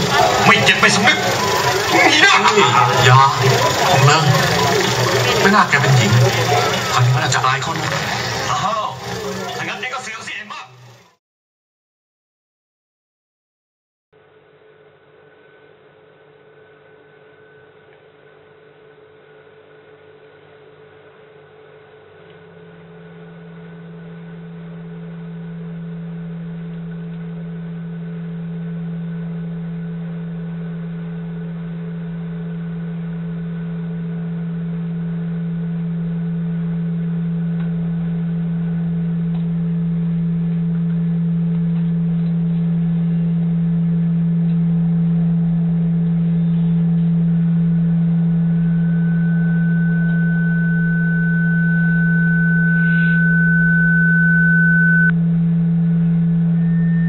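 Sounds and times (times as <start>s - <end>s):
low droning hum: 0.0s - 10.1s, 22.3s - 57.0s
high whine: 0.0s - 11.2s, 22.4s - 57.0s.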